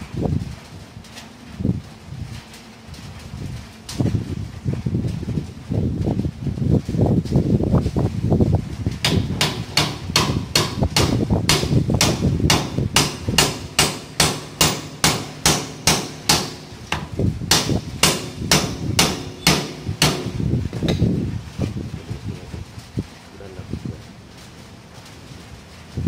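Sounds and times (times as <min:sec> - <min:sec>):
hammer striking metal: 0:09.0 - 0:20.4.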